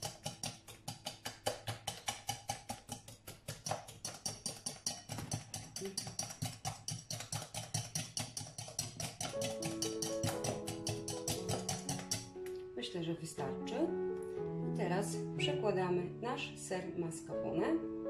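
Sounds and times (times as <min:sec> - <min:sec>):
whisk clicking against glass bowl: 0:00.0 - 0:12.3.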